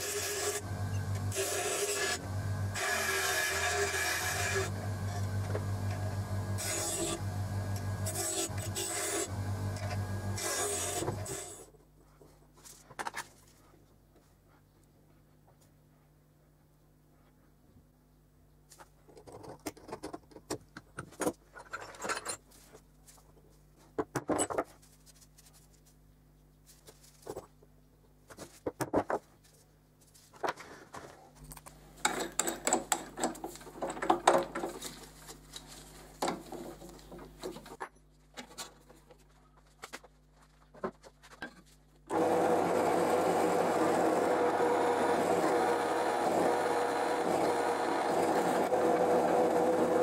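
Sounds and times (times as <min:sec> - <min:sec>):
metal parts clicking and rattling: 0:21.1 - 0:22.6
drill press drilling metal: 0:42.1 - 0:50.0.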